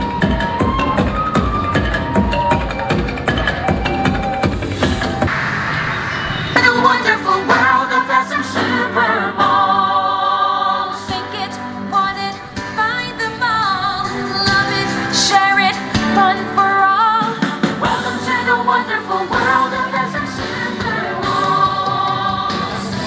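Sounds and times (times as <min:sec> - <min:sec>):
person singing with vibrato: 0:06.5 - 0:23.0.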